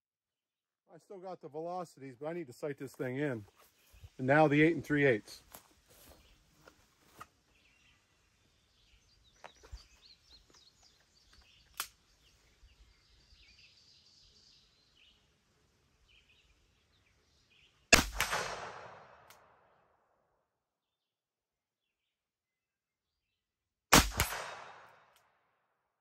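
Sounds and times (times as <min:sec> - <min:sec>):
sharp click: 0:11.7 - 0:12.0
revolver gunshot echoing: 0:17.9 - 0:19.3, 0:23.9 - 0:25.0.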